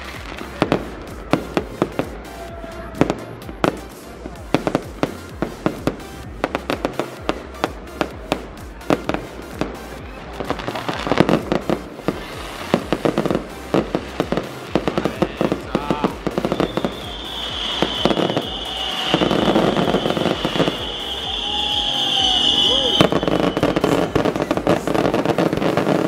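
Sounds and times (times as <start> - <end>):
fireworks bursting: 0.0 - 26.0.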